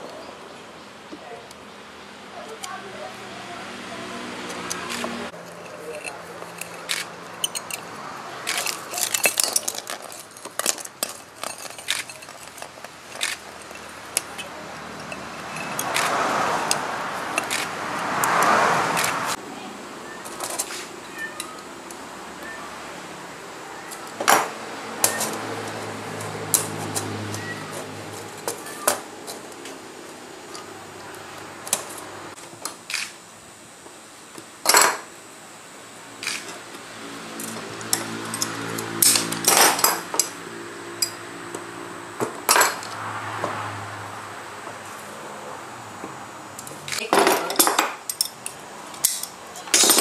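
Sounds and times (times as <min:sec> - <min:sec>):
metal strips clicking and clinking: 0:04.7 - 0:17.7, 0:46.6 - 0:50.0.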